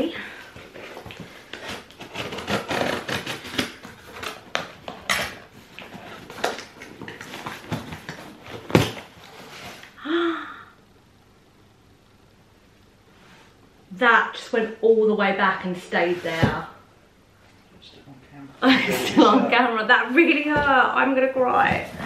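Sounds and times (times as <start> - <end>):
cardboard ripping and rustling: 0.7 - 9.9.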